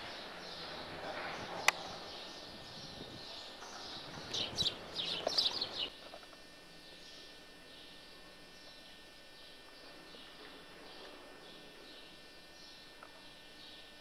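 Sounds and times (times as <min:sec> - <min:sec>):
birds chirping: 0:00.0 - 0:05.9
steady outdoor hiss: 0:00.0 - 0:14.0.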